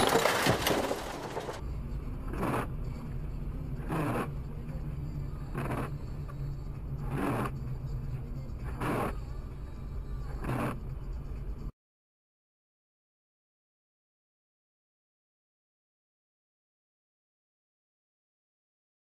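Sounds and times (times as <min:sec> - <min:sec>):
car engine and tyres hum: 0:00.0 - 0:11.7.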